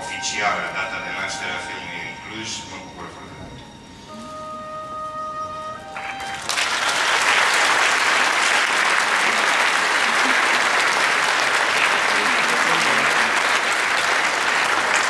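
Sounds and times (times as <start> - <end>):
held musical notes: 0.0 - 8.6
audience applause: 5.9 - 15.0.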